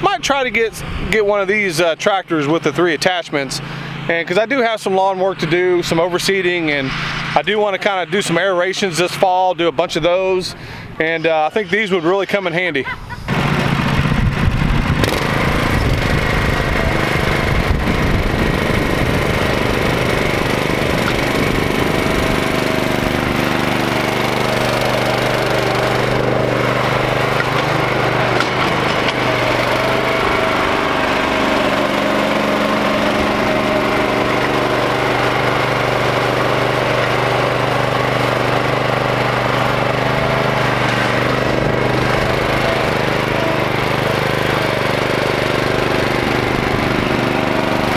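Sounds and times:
tractor engine running under load: 13.3 - 47.9.

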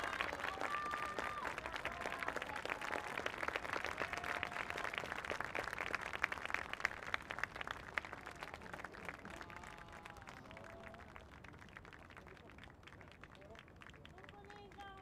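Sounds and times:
crowd applauding: 0.0 - 15.0.

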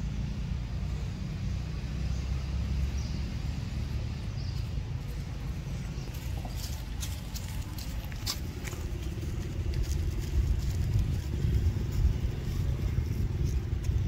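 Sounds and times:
vehicle engine rumbling: 0.0 - 14.0
dry leaves crackling: 3.5 - 14.0.

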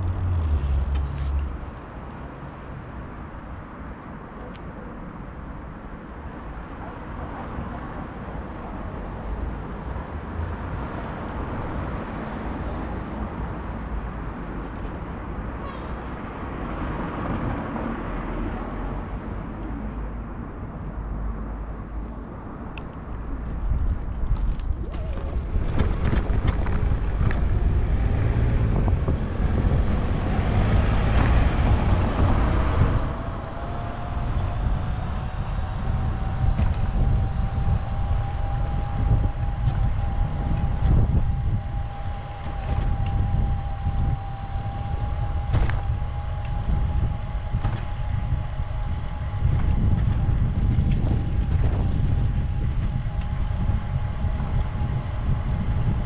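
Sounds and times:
thin whine: 0.0 - 1.9, 22.8 - 56.0
wind buffeting microphone: 0.0 - 3.8, 21.8 - 56.0
road rumble: 0.0 - 56.0.

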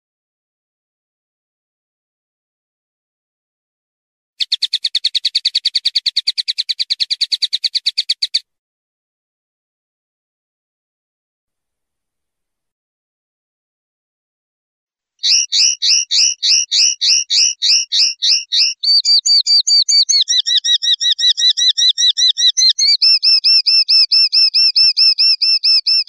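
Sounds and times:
linnet singing repeated notes: 4.4 - 8.4, 15.2 - 26.0.

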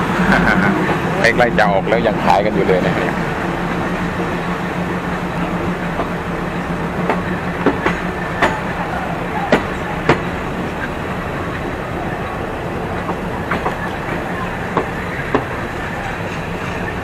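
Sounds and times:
train low hum: 0.0 - 17.0
wheels clacking over rail joints: 0.0 - 17.0.

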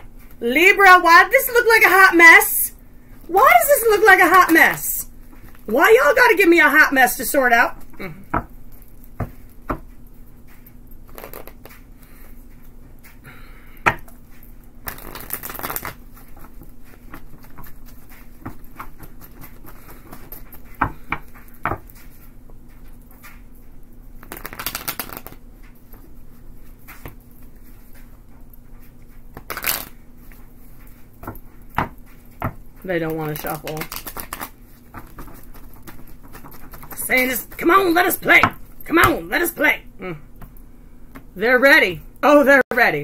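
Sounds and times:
cards rustling while shuffled: 7.4 - 13.2, 14.1 - 23.6, 24.2 - 39.5
cards knocking together: 11.1 - 11.8, 14.8 - 17.7, 24.2 - 25.4, 29.4 - 30.0, 31.2 - 37.6.

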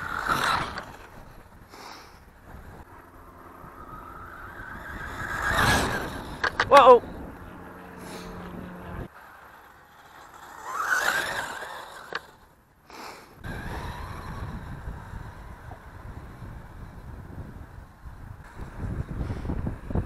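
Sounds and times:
electric motor whining: 0.0 - 1.6, 2.4 - 12.6, 13.4 - 19.2
wind noise on microphone: 3.6 - 9.1, 13.4 - 20.0.

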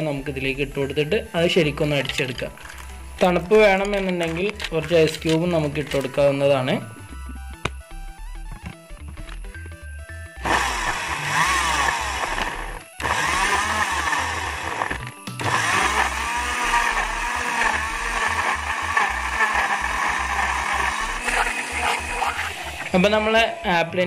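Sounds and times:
mixer grinder motor blending: 10.4 - 23.7.

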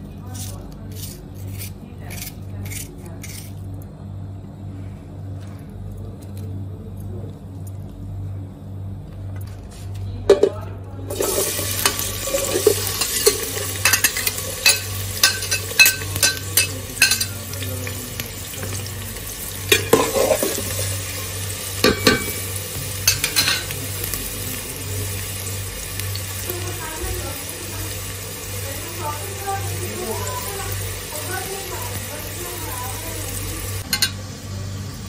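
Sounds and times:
onion sizzling in hot oil: 11.1 - 35.0.

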